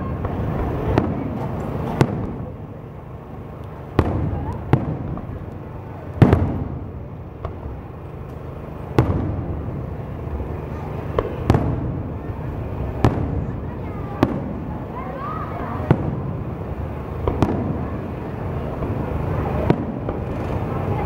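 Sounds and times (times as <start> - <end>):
firework shells booming: 0.0 - 15.0, 15.6 - 20.8.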